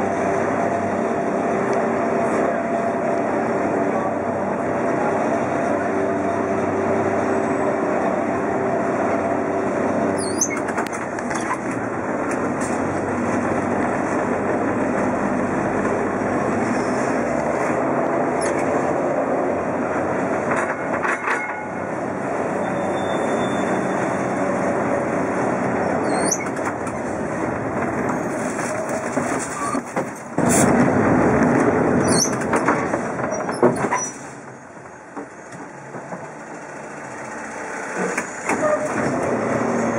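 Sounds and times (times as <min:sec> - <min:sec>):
tram wheels rumbling on track: 0:00.0 - 0:39.9
high wheel squeaks: 0:10.1 - 0:11.7, 0:22.5 - 0:24.4, 0:25.8 - 0:27.1, 0:29.4 - 0:30.2, 0:32.0 - 0:32.7, 0:33.3 - 0:34.3, 0:38.0 - 0:39.1
tram body knocking and rattling: 0:10.1 - 0:16.6, 0:17.3 - 0:22.6, 0:25.0 - 0:37.3, 0:37.9 - 0:39.7.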